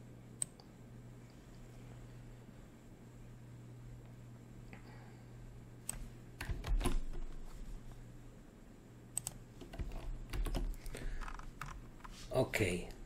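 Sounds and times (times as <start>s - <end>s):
computer keyboard keystrokes: 5.9s - 7.4s, 9.2s - 12.1s.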